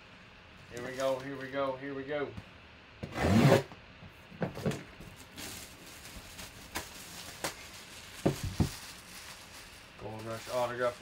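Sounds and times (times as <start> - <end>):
plastic crinkling: 5.0 - 11.0
plastic ripping: 5.2 - 11.0.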